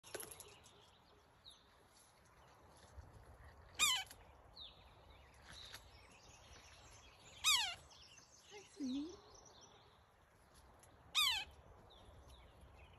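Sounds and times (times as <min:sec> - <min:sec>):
woodpecker calls: 0:07.4 - 0:07.9.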